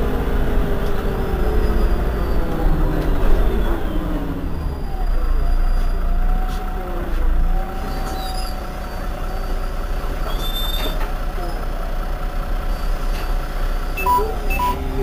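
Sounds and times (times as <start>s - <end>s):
bus engine idling: 0.0s - 15.0s
short electronic beep: 14.0s - 14.8s.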